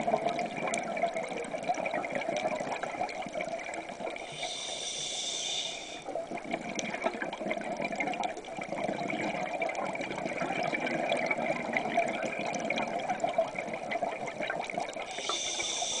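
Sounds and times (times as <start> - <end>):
regulator inhalation hiss: 4.2 - 6.1, 15.1 - 16.0
bubbling exhalation underwater: 6.2 - 15.2.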